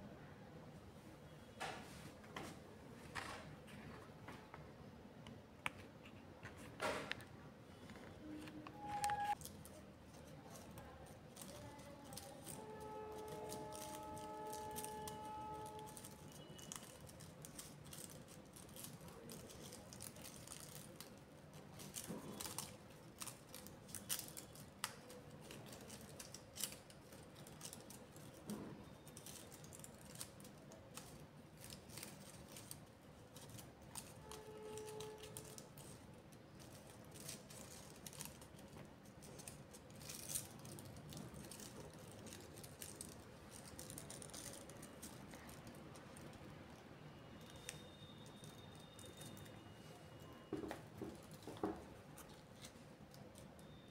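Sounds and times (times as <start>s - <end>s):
small objects clicking and rattling: 9.1s - 46.8s.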